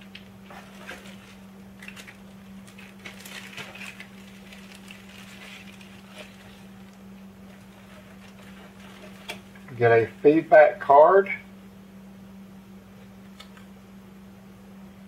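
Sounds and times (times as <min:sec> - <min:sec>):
plastic bag and cards rustling: 0:00.1 - 0:10.2.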